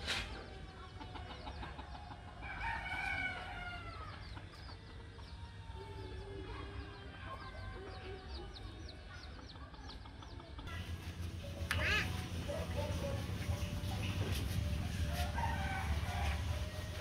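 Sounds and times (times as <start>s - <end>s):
chickens clucking: 0.0s - 2.6s, 3.2s - 5.5s, 8.9s - 17.0s.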